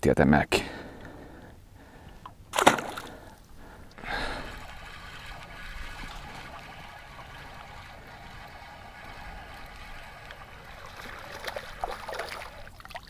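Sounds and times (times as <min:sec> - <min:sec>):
water trickling: 0:02.2 - 0:13.0.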